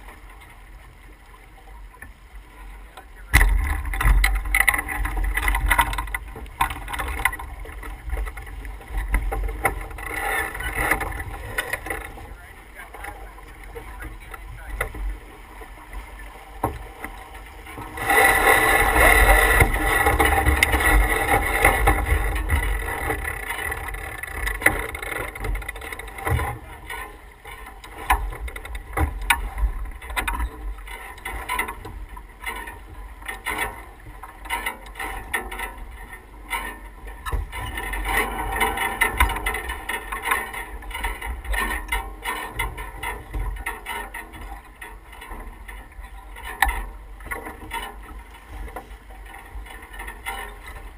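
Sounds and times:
rush of water and wind: 0.0s - 50.9s
clicks and knocks: 3.3s - 12.2s.

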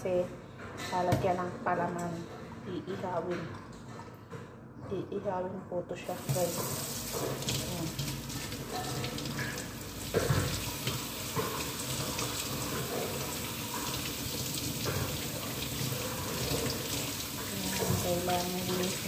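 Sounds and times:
tap running into sink: 6.2s - 19.0s.

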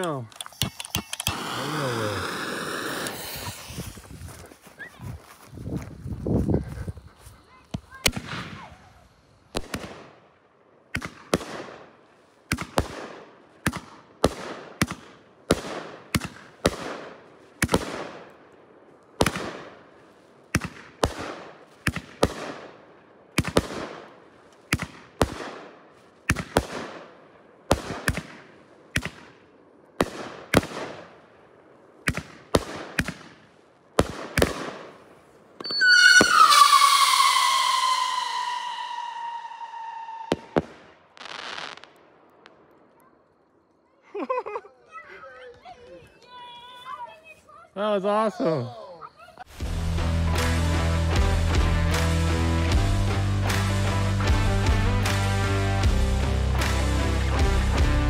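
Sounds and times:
firework launch thumps and bursts: 0.0s - 4.2s, 9.5s - 10.1s, 12.5s - 18.2s, 20.5s - 22.6s, 23.4s - 24.1s, 24.7s - 27.0s, 27.7s - 29.4s, 32.0s - 34.9s, 35.6s - 41.9s
firework whistle falling in pitch: 35.6s - 40.6s.

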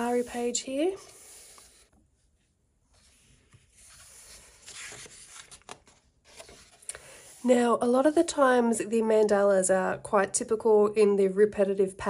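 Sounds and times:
paper page rustling: 2.9s - 8.2s.

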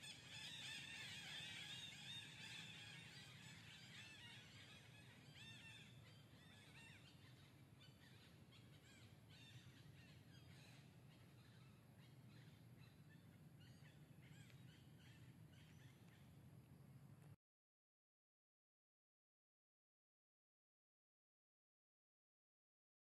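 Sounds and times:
low steady hum: 0.0s - 17.4s.

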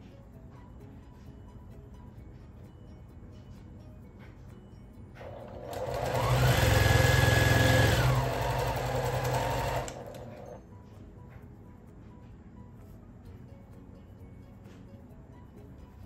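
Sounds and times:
electric sewing machine stitching: 5.2s - 10.6s.

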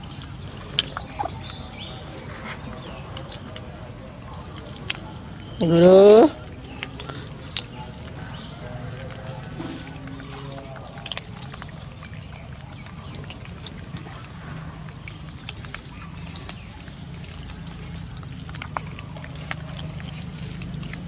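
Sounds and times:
rustling against microphone: 0.0s - 5.2s.

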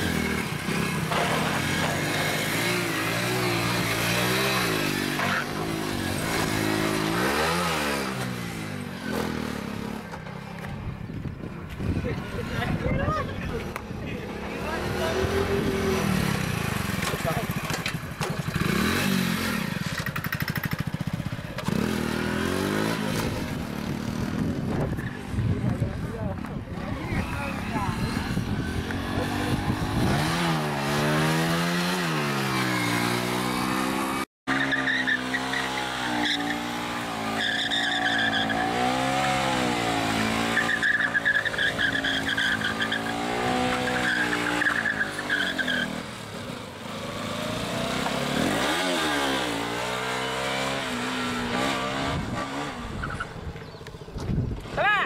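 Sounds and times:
motorcycle engines revving: 0.0s - 55.0s
tyres squealing: 34.5s - 46.0s.

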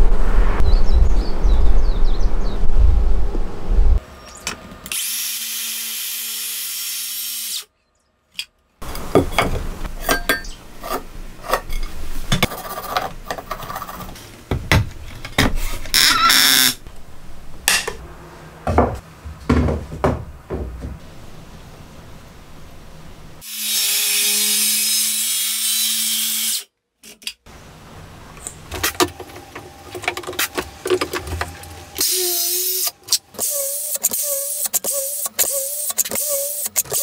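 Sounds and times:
knocks and scrapes: 8.9s - 16.0s, 17.6s - 21.1s.

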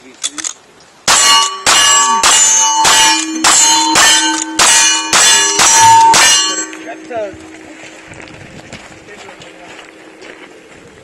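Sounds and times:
steel plate clanging: 1.1s - 8.0s.

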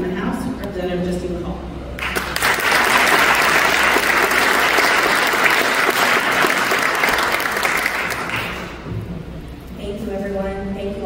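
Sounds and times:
audience applauding: 2.0s - 8.8s.

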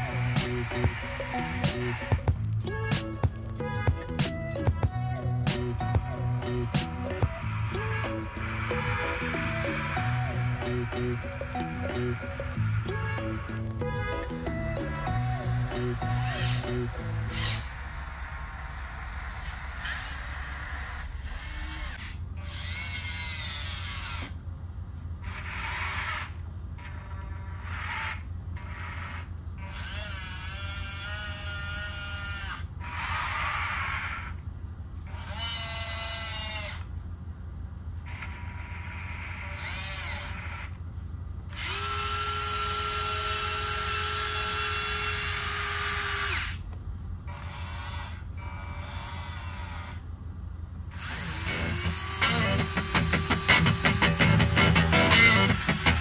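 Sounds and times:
electric motors whining: 0.0s - 18.2s, 39.1s - 40.8s, 41.6s - 46.6s, 50.9s - 56.0s
low steady hum: 0.0s - 25.2s, 39.6s - 56.0s.

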